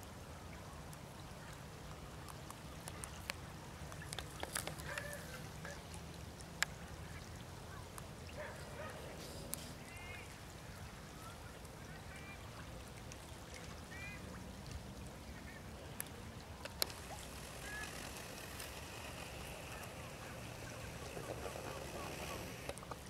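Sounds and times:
sharp clicks: 16.6 - 23.0
birds chirping: 16.7 - 22.8.

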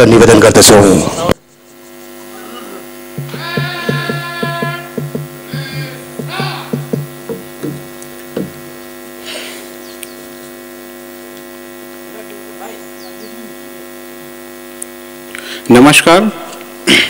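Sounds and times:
electrical mains hum: 0.0 - 17.0
soft knocks: 3.2 - 8.7.

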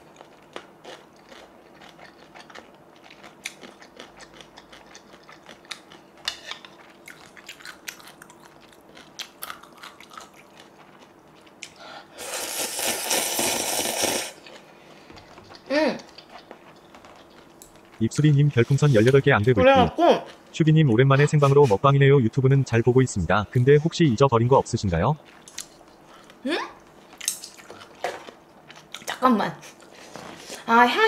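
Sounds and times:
person chewing: 0.0 - 19.2, 25.2 - 26.4, 27.0 - 30.6
slurping noodles: 12.2 - 14.4.

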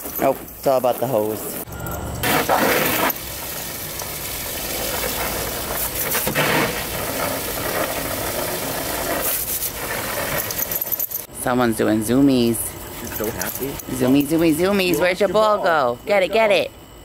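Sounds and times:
water spattering: 0.6 - 10.7
hose spray nozzle hissing: 4.7 - 10.6.

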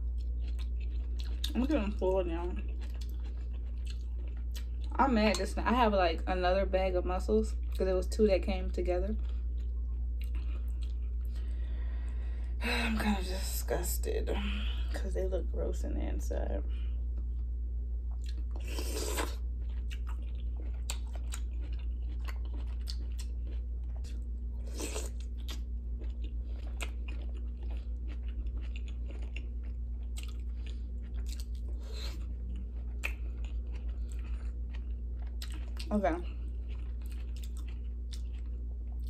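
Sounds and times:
low hum: 0.0 - 39.0
chewing mouth sounds: 2.5 - 4.9, 9.2 - 11.5, 18.1 - 39.0.

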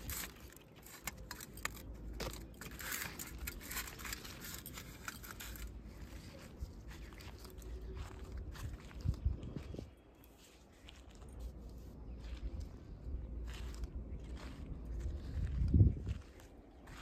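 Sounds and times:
faint handling clicks and rustles: 0.0 - 17.0
low steady rumble: 10.8 - 17.0.

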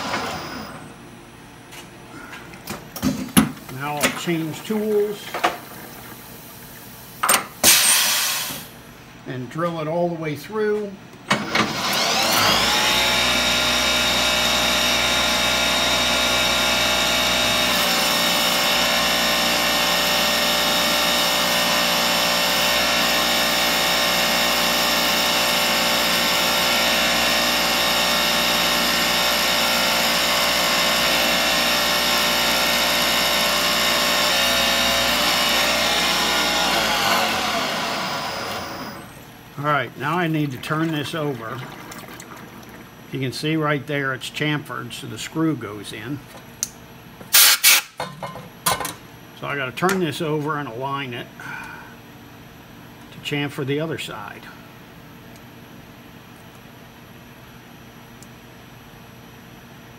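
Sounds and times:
milling machine spindle whine: 0.0 - 1.0, 11.7 - 39.3
coolant spraying hiss: 5.9 - 8.8.

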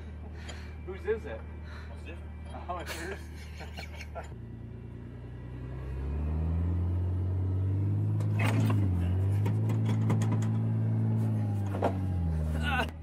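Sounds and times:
knocks and clicks: 9.4 - 10.7.

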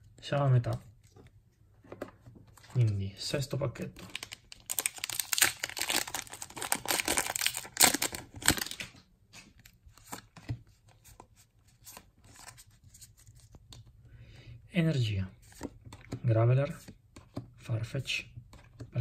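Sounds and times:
foil wrapper crackling: 4.2 - 8.8.

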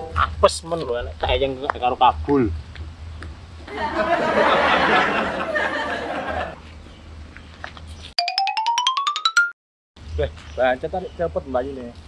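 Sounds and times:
people laughing: 3.7 - 6.6.

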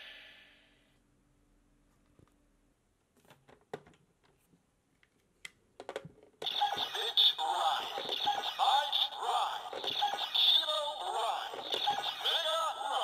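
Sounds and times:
music from toy speaker: 6.4 - 13.0
synthesized voice: 6.4 - 13.0
toy belt electronic sound effect: 6.4 - 13.0.

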